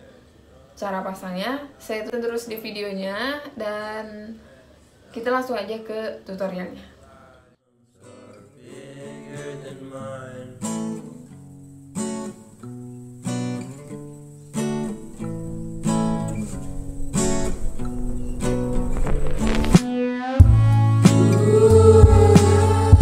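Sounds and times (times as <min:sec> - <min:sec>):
acoustic guitar strumming chords: 0:08.0 - 0:23.0.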